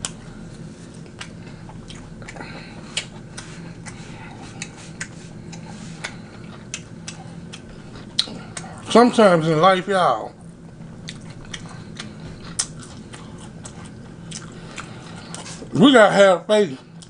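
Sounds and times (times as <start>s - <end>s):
person chewing with mouth clicks: 0.0s - 0.2s, 0.9s - 8.9s, 11.0s - 15.7s
steady low hum: 0.0s - 17.0s.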